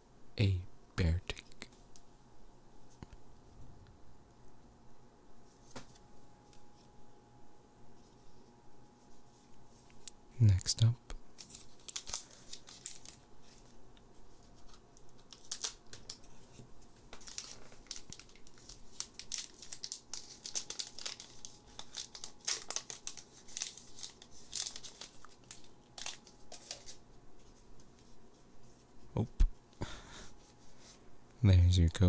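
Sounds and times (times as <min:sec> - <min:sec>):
foil wrapper crinkling and tearing: 0:11.4 - 0:27.0.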